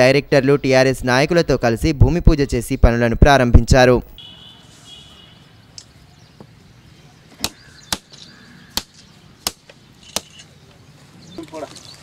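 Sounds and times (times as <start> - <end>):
coconuts cracking: 7.4 - 10.3.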